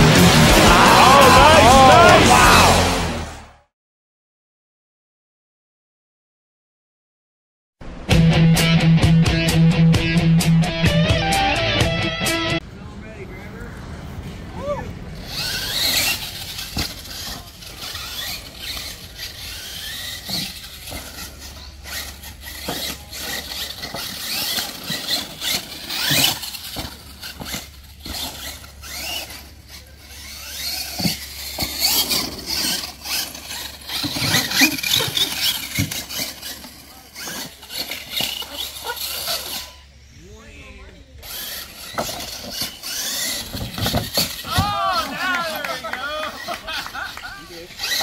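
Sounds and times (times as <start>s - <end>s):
rc truck motor whining: 15.1s - 40.2s, 41.0s - 48.0s.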